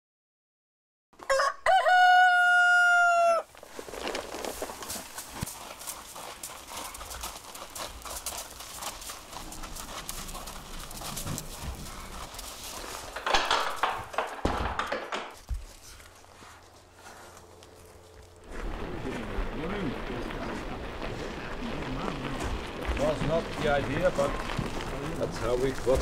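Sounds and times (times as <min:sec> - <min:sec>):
rooster crowing: 0:01.2 - 0:03.5
knocks and shuffling: 0:03.5 - 0:19.6
loud clatter: 0:12.8 - 0:15.4.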